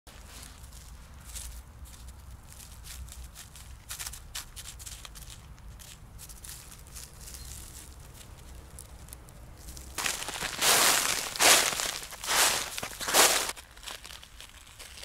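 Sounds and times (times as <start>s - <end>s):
paws crunching in snow: 0.1s - 8.9s, 9.6s - 15.0s
loud snow crunching close: 9.7s - 14.2s.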